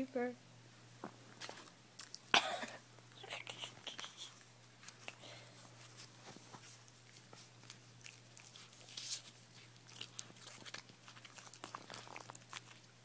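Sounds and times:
puppy chewing paper: 3.2 - 13.0.

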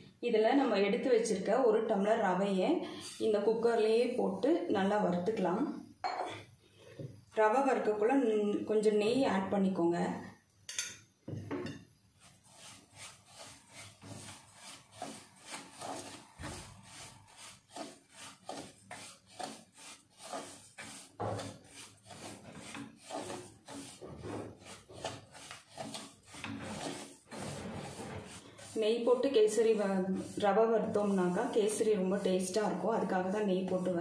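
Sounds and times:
spatula scraping semolina in pot: 3.0 - 3.6, 12.1 - 34.0.

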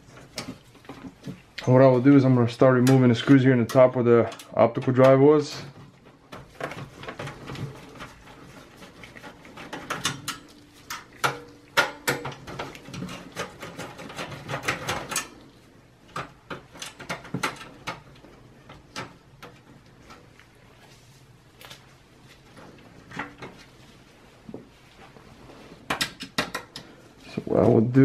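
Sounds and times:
metal clicks taps and scrapes: 25.9 - 27.0.

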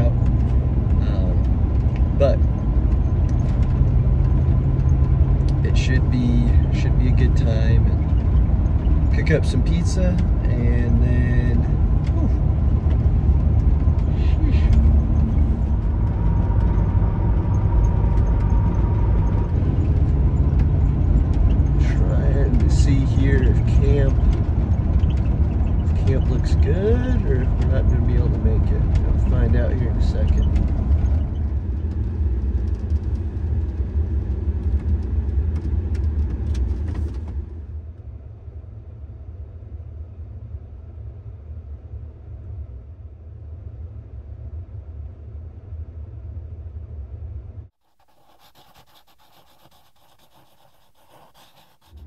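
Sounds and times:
light clicks and rattles: 0.0 - 10.5
truck engine and road rumble: 0.0 - 52.0.

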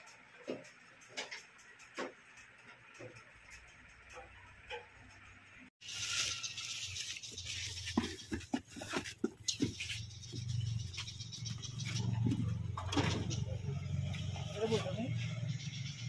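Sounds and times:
sharp clicks and knocks: 0.0 - 5.6.

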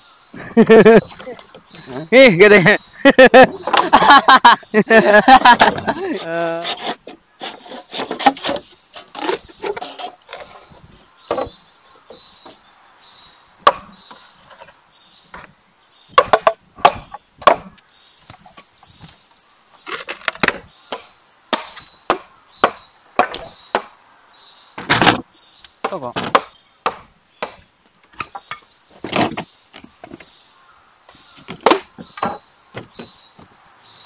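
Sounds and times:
blade chopping bamboo: 5.9 - 10.5, 16.2 - 17.8, 25.8 - 28.4, 31.5 - 32.4.

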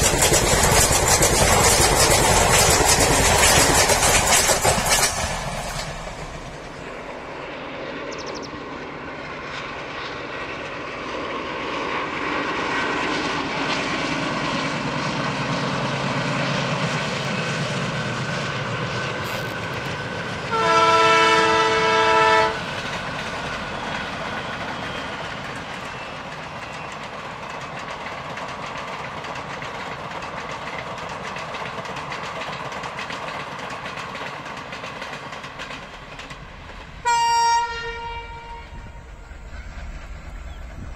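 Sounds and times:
diesel locomotive engine rumble: 0.0 - 40.9
train wheel and rail noise: 0.0 - 40.9
train horn blast: 20.5 - 22.6, 37.0 - 39.1.

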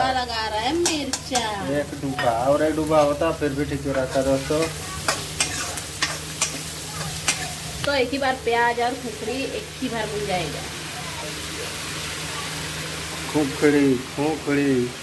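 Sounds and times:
light oil sizzle: 0.0 - 15.0
spoon scraping and clicking on pan: 4.4 - 7.5.

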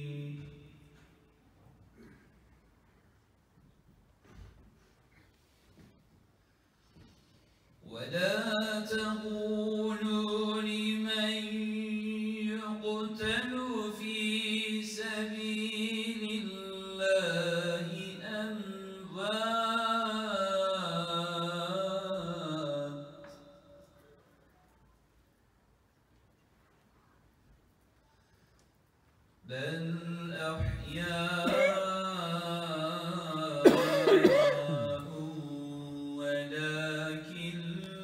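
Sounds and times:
man chanting: 29.5 - 38.0.

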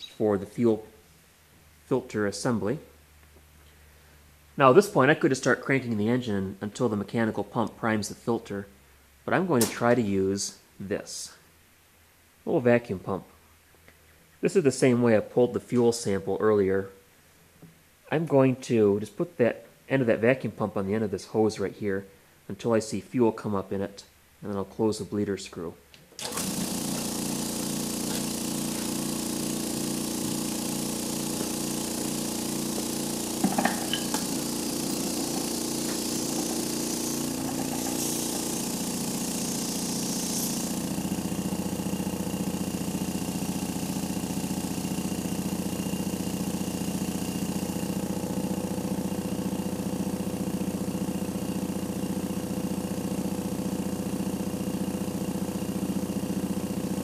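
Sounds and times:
electric vacuum pump chugging: 26.2 - 57.0.

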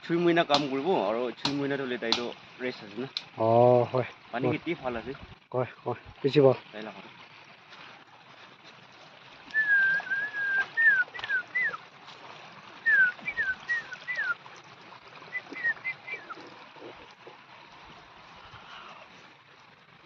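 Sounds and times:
whistled notes: 9.5 - 11.8, 12.8 - 14.4, 15.3 - 16.4.

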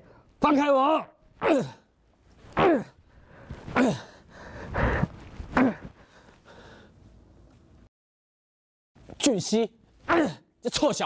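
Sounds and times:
man's wordless cries and grunts: 0.4 - 2.0, 2.6 - 3.0, 3.7 - 4.2, 9.2 - 11.0
cloth rustling: 4.9 - 6.4.

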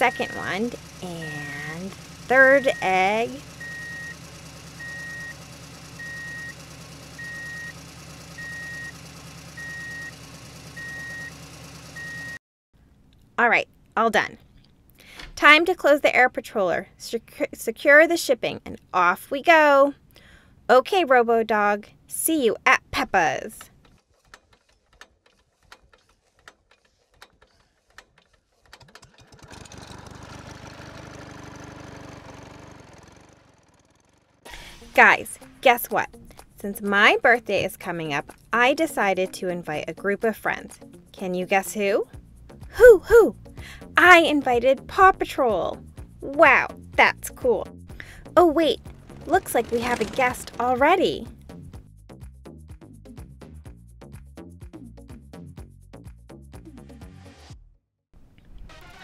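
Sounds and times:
engine idling: 0.0 - 12.4, 27.8 - 35.5, 47.9 - 51.0
truck reversing alarm beeping: 0.0 - 12.4.

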